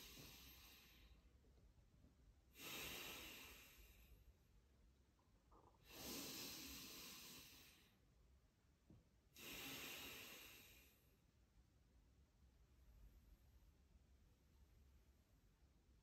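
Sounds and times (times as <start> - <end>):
deep slow breathing: 0.0 - 1.3, 2.5 - 4.3, 5.7 - 8.0, 9.4 - 11.1.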